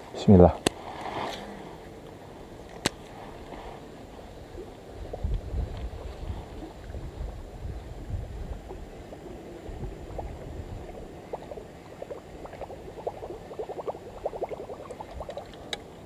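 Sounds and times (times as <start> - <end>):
wind rumble on microphone: 3.0 - 13.6.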